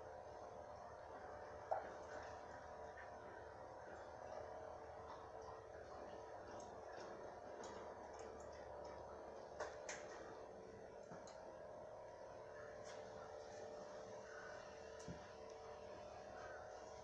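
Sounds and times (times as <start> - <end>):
low room hum: 0.0 - 17.0
faint clicks and ticks: 5.0 - 11.5.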